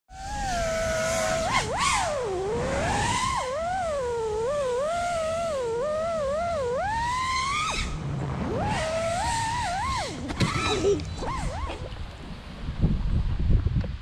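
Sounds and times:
drone motors and propellers whining: 0.1 - 12.1.

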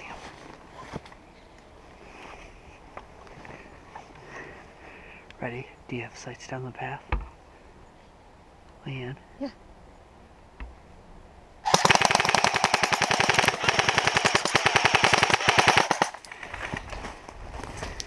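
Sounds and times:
airsoft rifle firing full auto: 11.7 - 16.2.

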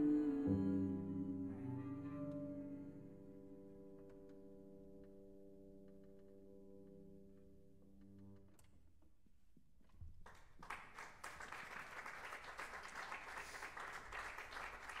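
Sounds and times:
audience applauding: 10.2 - 15.0.

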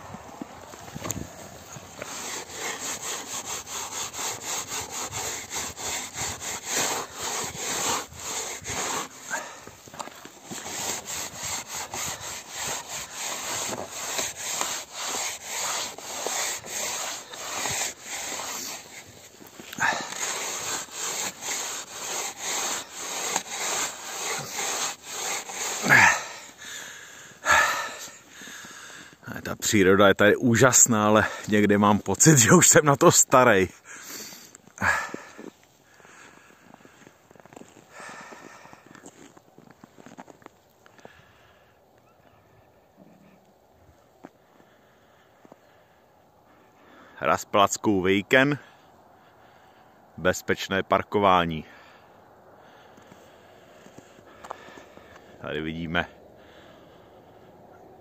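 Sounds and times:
cloth scraping frost: 0.2 - 26.6.

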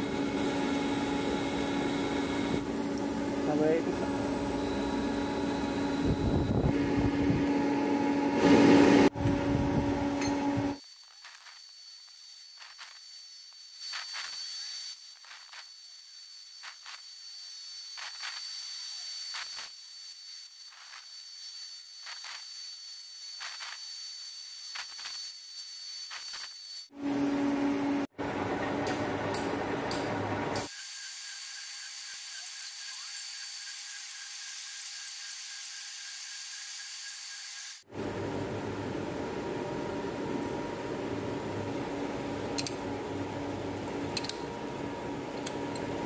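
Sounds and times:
metal lathe humming: 0.0 - 10.8.

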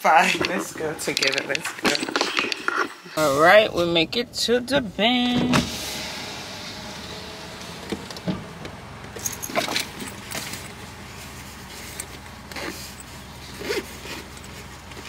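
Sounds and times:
keys and small items clinking: 0.3 - 3.2
car engine idling: 3.1 - 15.0.

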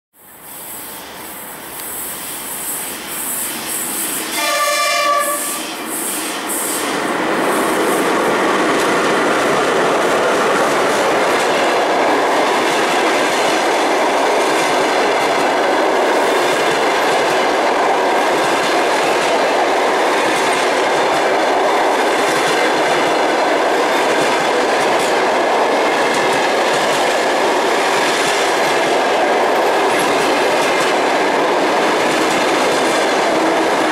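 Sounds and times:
train wheels on rails: 0.2 - 33.9
train horn blast: 4.3 - 5.8.

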